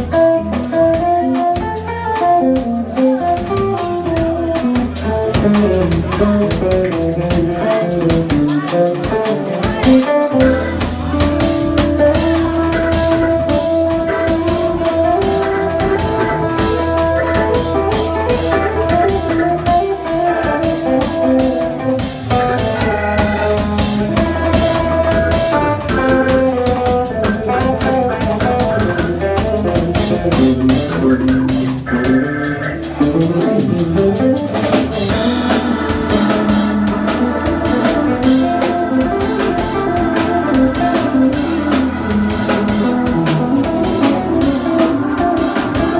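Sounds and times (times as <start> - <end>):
drum kit beat: 0.0 - 45.9
electric guitar: 0.0 - 45.9
low bass line: 0.0 - 45.9
saxophone: 6.9 - 45.9
organ: 9.8 - 45.9.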